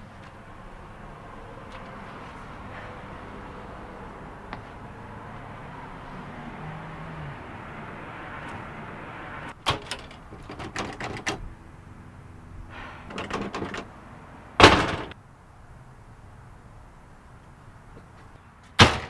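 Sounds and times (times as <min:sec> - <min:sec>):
door clicks and rattles: 0:09.5 - 0:11.5, 0:13.1 - 0:13.9, 0:14.6 - 0:15.2
door slamming shut: 0:09.6 - 0:11.4, 0:12.8 - 0:13.9, 0:14.6 - 0:15.2, 0:18.8 - 0:19.0.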